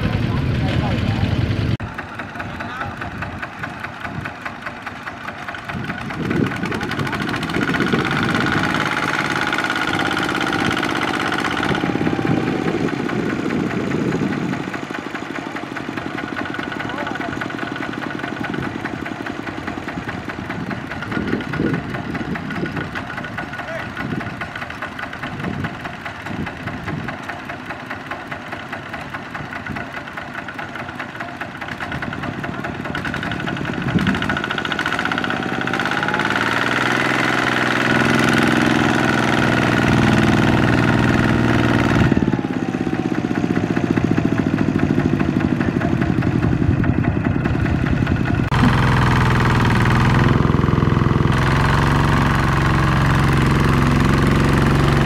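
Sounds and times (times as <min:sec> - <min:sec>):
diesel engine running under load: 0:00.0 - 0:55.0.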